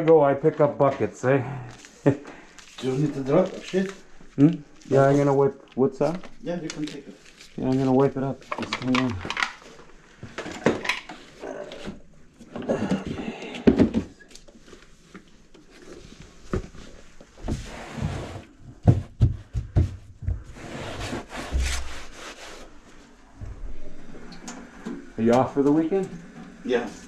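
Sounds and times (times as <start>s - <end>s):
rag wiping cabinet floor: 17.4s - 23.1s.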